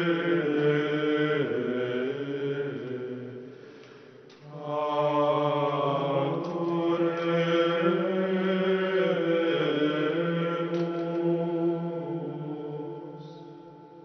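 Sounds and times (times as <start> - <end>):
man singing plainchant: 4.5 - 14.0.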